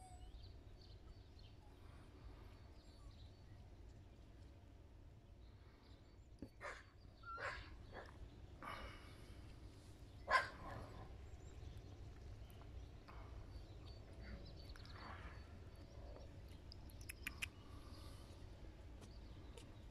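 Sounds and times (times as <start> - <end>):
puppy whimpering: 0.0 - 0.3
sharp clicks: 16.5 - 17.6.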